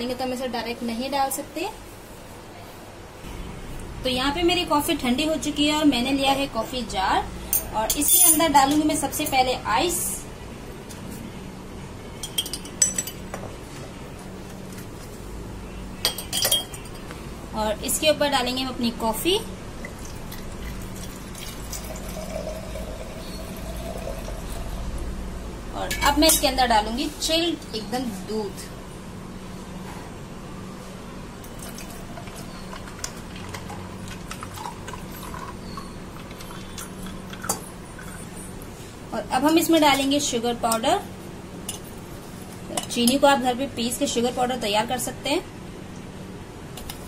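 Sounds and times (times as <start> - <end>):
steady low hum: 0.0 - 47.0
milk pouring over ice: 19.9 - 24.7, 31.6 - 38.3.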